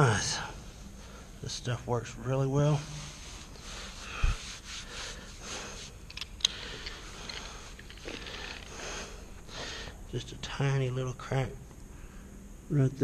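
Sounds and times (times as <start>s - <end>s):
hands rubbing carpet: 2.8s - 6.2s.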